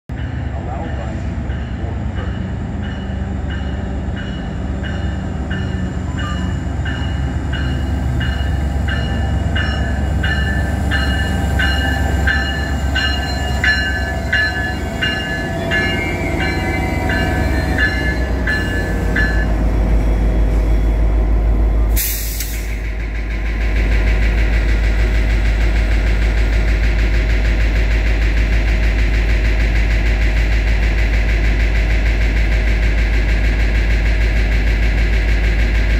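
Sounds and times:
train bell ringing: 0.1s - 19.7s
train rumbling: 0.1s - 35.9s
brief air hiss: 22.0s - 22.8s.

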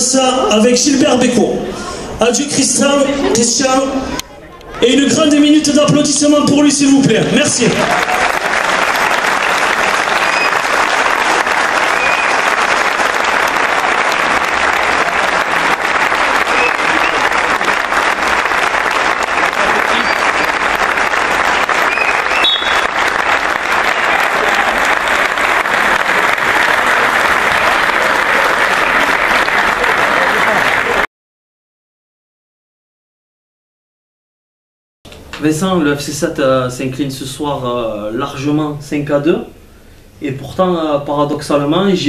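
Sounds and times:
crowd clapping steadily: 7.2s - 31.1s.

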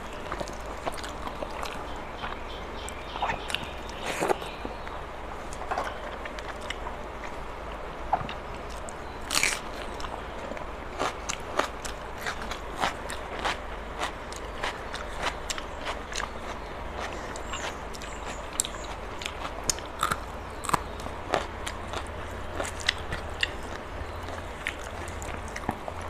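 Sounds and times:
wet chewing with mouth clicks: 11.0s - 26.0s.

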